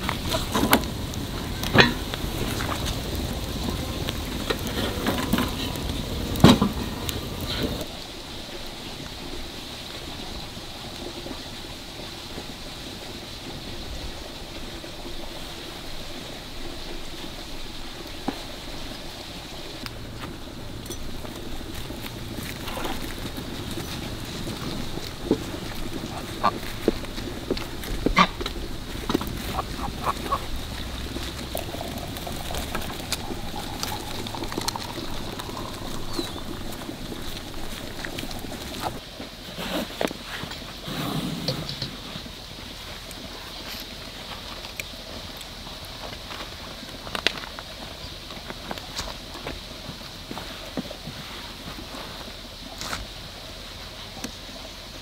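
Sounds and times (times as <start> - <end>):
outdoor rushing hiss: 0.0 - 46.9
water pouring into teapot: 28.6 - 39.0.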